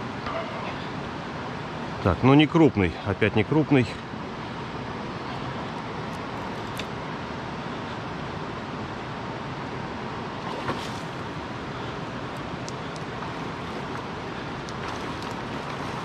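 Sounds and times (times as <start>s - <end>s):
river current rushing: 10.1s - 16.0s
faint clicks: 12.3s - 13.1s.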